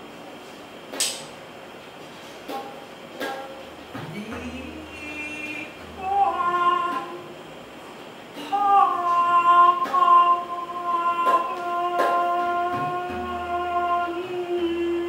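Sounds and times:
woman singing a long high note: 0:04.4 - 0:07.4, 0:08.4 - 0:15.0.

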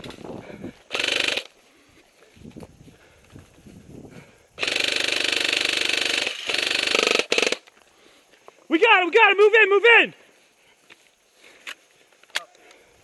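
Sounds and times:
airsoft rifle firing bursts: 0:00.9 - 0:01.5, 0:04.6 - 0:07.6.

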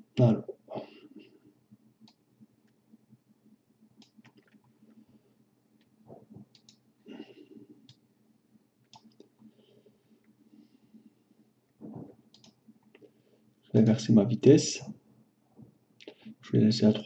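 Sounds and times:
low steady hum: 0:00.0 - 0:17.0
soft low noises: 0:00.0 - 0:17.0
computer mouse clicks: 0:02.0 - 0:02.8, 0:04.0 - 0:04.7, 0:06.5 - 0:06.8, 0:07.8 - 0:08.0, 0:08.8 - 0:09.4, 0:12.3 - 0:13.1.

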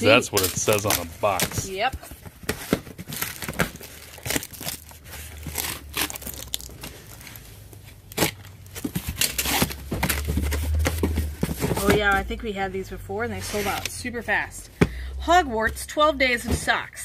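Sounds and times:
packing tape cut and torn: 0:00.1 - 0:01.7, 0:02.4 - 0:07.4, 0:08.0 - 0:10.9.

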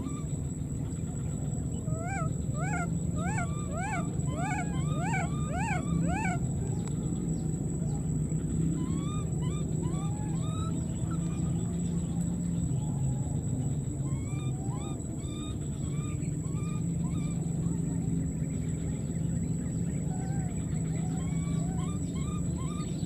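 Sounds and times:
low hum: 0:00.0 - 0:23.0
baby monkey crying: 0:01.9 - 0:06.4, 0:08.8 - 0:11.3.

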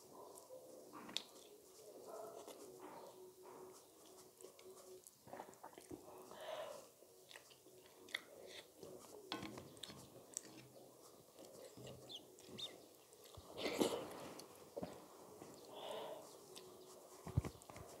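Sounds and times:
fingers mixing rice on plate: 0:01.0 - 0:05.2
person chewing with wet smacks: 0:01.1 - 0:01.6, 0:04.0 - 0:06.1, 0:06.9 - 0:14.5.

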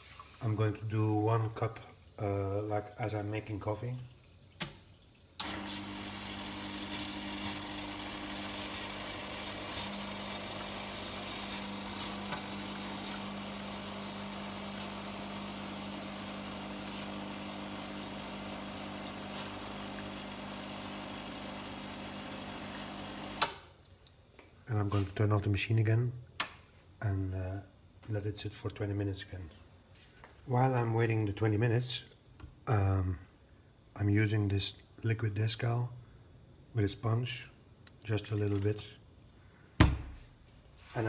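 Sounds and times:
espresso machine pump humming: 0:05.4 - 0:23.4.

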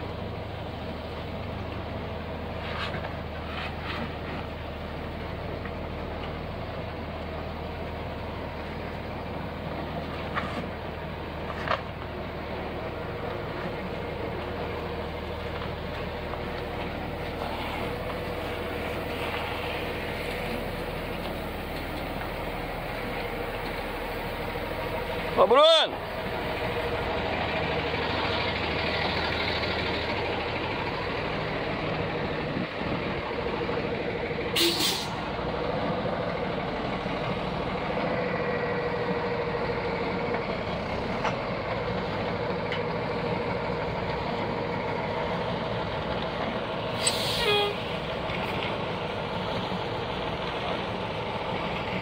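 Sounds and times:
truck diesel engine running: 0:00.0 - 0:52.0
air brake hisses: 0:34.6 - 0:35.2, 0:47.0 - 0:47.9.

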